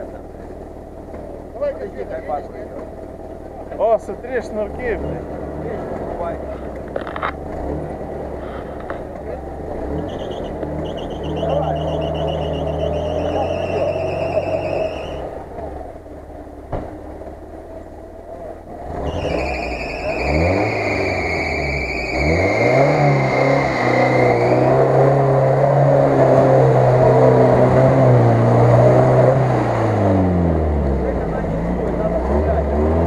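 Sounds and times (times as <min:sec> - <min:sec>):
engine revving hard: 0:07.5 - 0:08.9, 0:09.6 - 0:15.4, 0:18.8 - 0:33.0.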